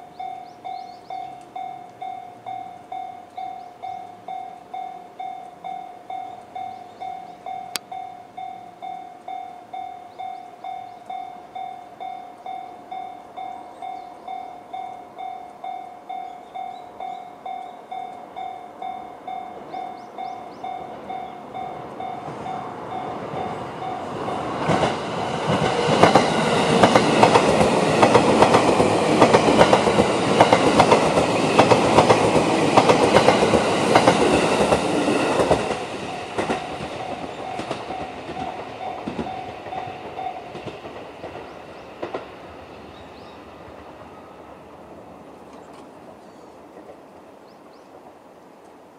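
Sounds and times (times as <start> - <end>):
train wheels clattering over rail joints: 22.0 - 42.4.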